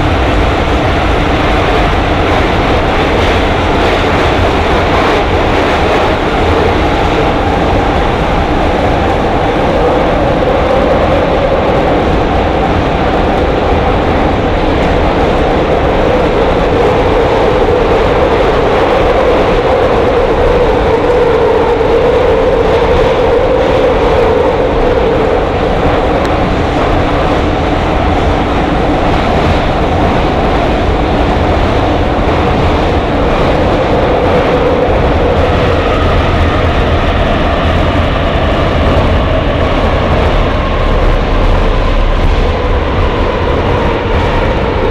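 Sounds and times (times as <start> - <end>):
train wheels running on rails: 0.0 - 44.9.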